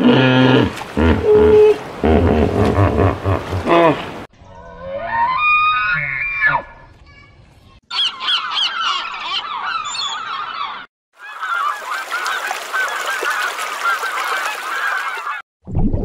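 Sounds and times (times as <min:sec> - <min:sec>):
gulls squabbling calls: 0:07.9 - 0:15.4.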